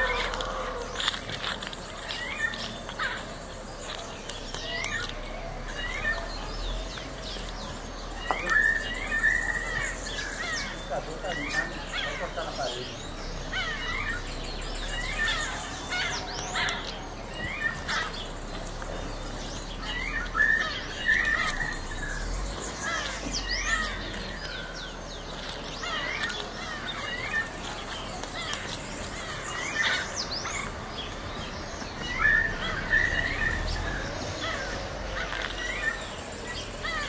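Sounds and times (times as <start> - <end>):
wild birds chirping and calling: 0.0 - 37.0.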